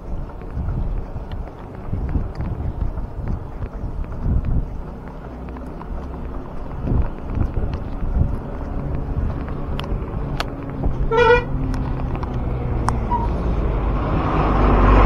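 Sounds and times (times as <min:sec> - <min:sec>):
road traffic rumble: 0:00.0 - 0:15.0
sharp clicks: 0:00.2 - 0:13.1
vehicle horn toot: 0:11.0 - 0:11.6.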